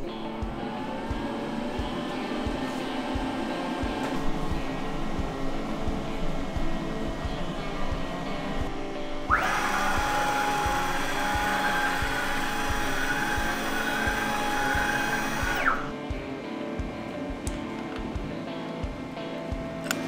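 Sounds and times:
stepper motor whine: 0.0s - 16.0s
background music with a beat: 0.0s - 20.0s.

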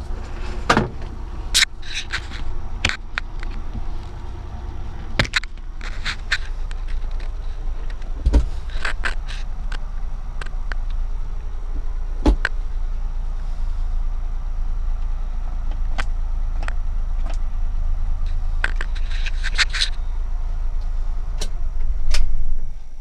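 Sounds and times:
sharp clicks and rattles: 0.0s - 12.6s, 18.2s - 20.1s
truck engine drone: 0.0s - 23.0s.

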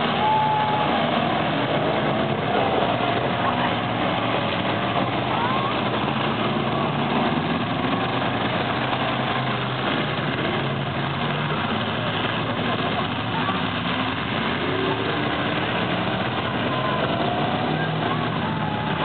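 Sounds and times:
car engines revving: 0.0s - 19.0s.

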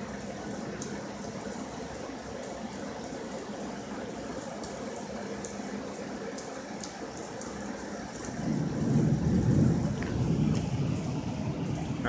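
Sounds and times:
rain falling: 0.0s - 12.0s
raindrops ticking close by: 0.0s - 12.0s.

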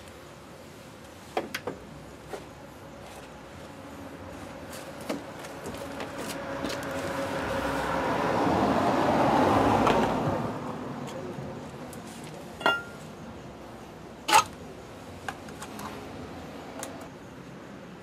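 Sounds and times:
vehicle passing by: 3.9s - 11.6s.

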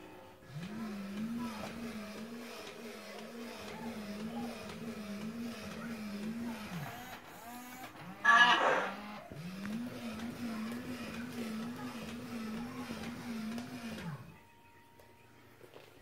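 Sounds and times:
toy gear motor whirring: 0.4s - 14.4s
loud pitched sound: 8.2s - 9.0s.

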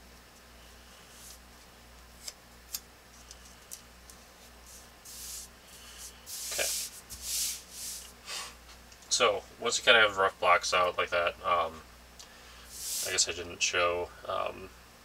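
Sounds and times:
palms rubbing paper: 0.9s - 1.4s, 4.4s - 8.1s, 12.7s - 13.2s.

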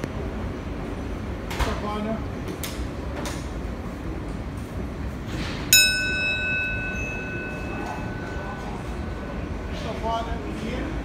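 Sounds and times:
subway train rumbling: 0.0s - 11.0s
train door chime: 5.7s - 10.0s.

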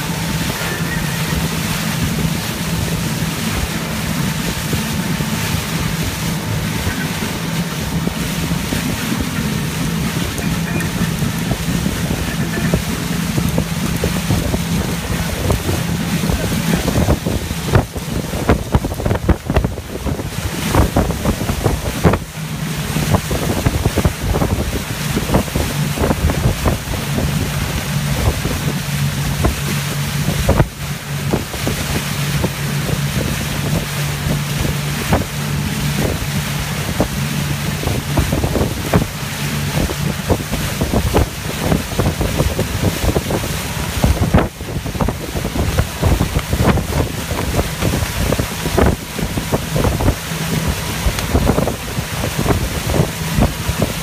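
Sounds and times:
boat engine hum: 0.0s - 54.0s
rushing wake water: 0.0s - 54.0s
wind buffeting microphone: 0.0s - 54.0s.

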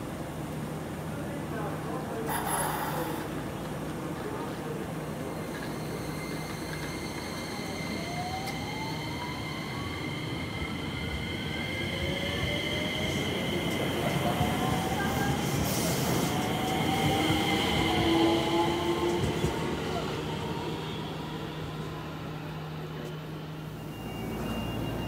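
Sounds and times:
rumble of train cars: 0.0s - 25.0s
electric train inverter whine: 5.2s - 25.0s.

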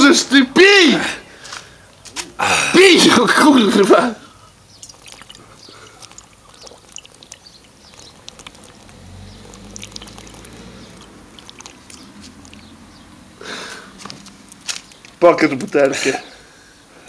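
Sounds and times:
faint liquid glugs: 4.6s - 12.7s
man gulping from bottle: 4.8s - 8.7s.

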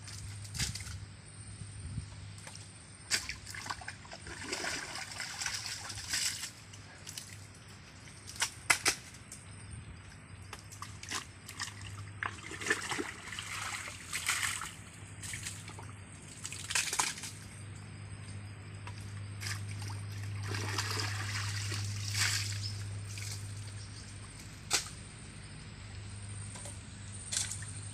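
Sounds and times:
muddy water sloshing and splashing: 0.0s - 1.1s, 2.3s - 9.3s, 10.0s - 25.0s, 26.5s - 27.9s
low hum: 9.4s - 27.9s.

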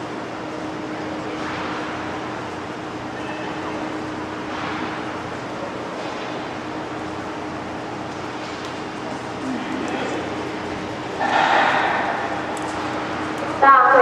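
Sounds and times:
low steady hum: 0.0s - 14.0s
distant indistinct voices: 0.6s - 4.3s, 9.2s - 14.0s.

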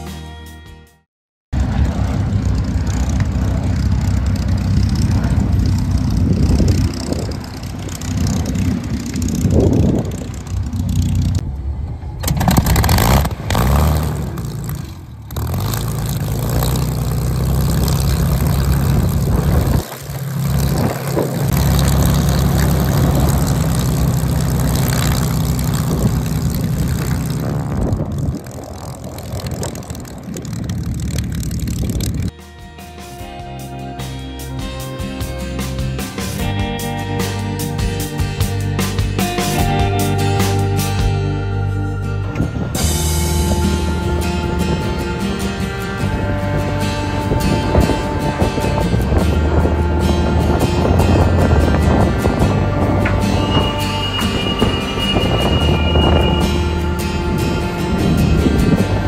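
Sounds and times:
aircraft engine starting up: 1.6s - 32.3s
piston aircraft engine taxiing: 1.6s - 32.4s, 33.2s - 59.0s.

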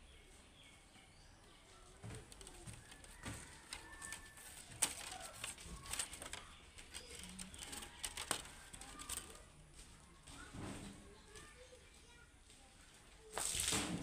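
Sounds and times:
bamboo strips clicking: 2.4s - 9.3s.

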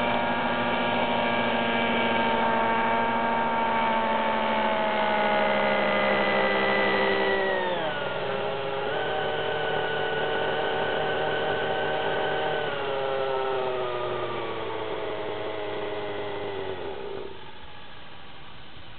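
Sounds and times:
rotor spinning: 0.0s - 18.1s
model helicopter engine running: 0.0s - 18.9s.

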